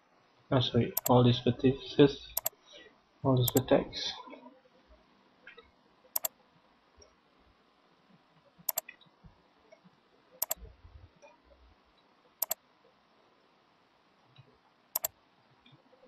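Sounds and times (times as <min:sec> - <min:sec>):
computer mouse button clicking: 0:03.5 - 0:03.7.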